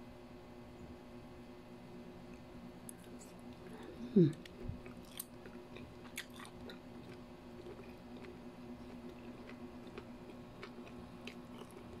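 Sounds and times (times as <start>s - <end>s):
faint hum: 0.0s - 12.0s
quiet chewing: 2.3s - 12.0s.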